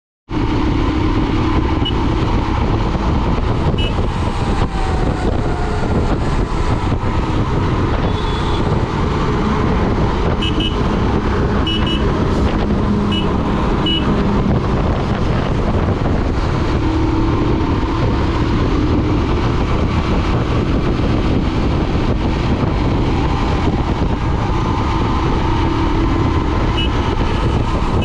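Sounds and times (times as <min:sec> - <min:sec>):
motorcycle engine cruising: 0:00.3 - 0:28.0
wind noise on microphone: 0:00.3 - 0:28.0
high horn toots: 0:03.7 - 0:04.1, 0:08.0 - 0:08.8, 0:10.2 - 0:11.0, 0:11.6 - 0:12.2, 0:13.0 - 0:14.2, 0:26.7 - 0:28.0.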